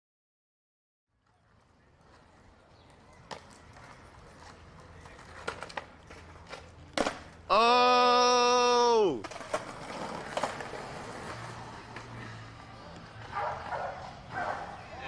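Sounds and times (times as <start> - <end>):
outdoor background noise: 1.1 - 15.0
skateboard clacking on concrete: 1.2 - 7.4, 9.2 - 14.9.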